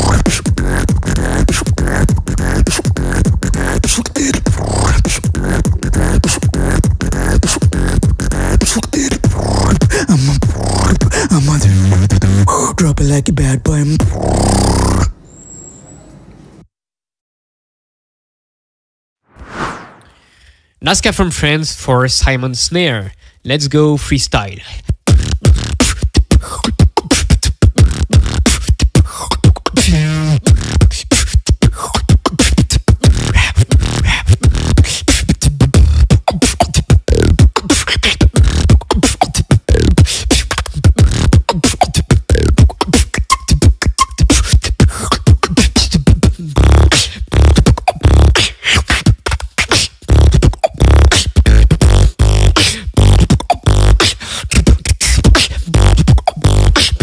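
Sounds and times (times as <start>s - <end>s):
person beatboxing: 0.0s - 15.1s, 24.4s - 57.0s
pitched vocal sound: 0.0s - 15.1s, 44.3s - 57.0s.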